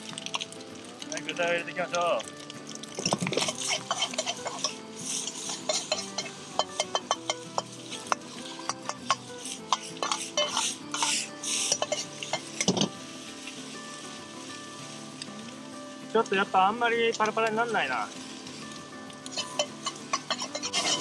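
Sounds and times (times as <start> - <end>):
ladle scraping wok: 2.9 - 15.3, 18.2 - 21.0
metal ladle clanking in wok: 3.1 - 12.9, 19.3 - 21.0.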